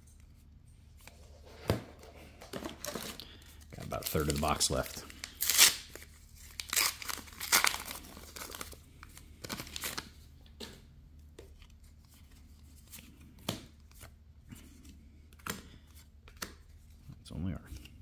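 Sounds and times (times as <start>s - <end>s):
wrapper tearing and crinkling: 3.8s - 10.2s.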